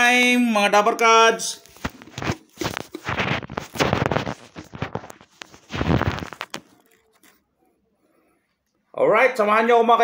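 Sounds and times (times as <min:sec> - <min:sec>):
phone handling rustles and knocks: 0:01.8 - 0:07.4.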